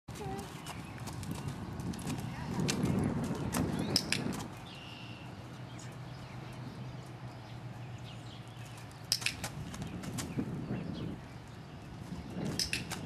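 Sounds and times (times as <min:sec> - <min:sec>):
sharp clicks or knocks: 0:09.1 - 0:09.6, 0:12.5 - 0:13.0.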